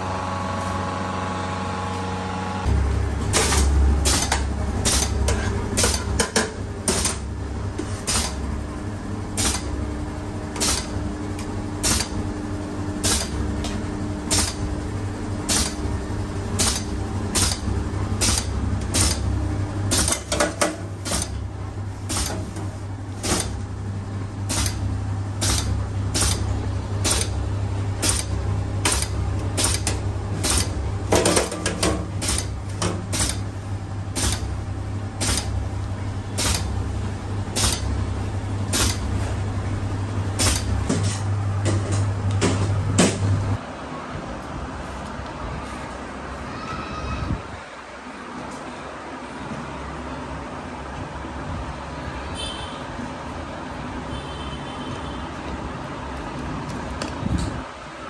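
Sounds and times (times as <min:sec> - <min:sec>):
machine motor hum: 0:00.0 - 0:46.0
mechanical clack: 0:28.0 - 0:33.5, 0:34.1 - 0:34.6, 0:35.2 - 0:35.6, 0:36.4 - 0:36.8, 0:37.5 - 0:37.9, 0:38.7 - 0:39.1, 0:40.4 - 0:43.2.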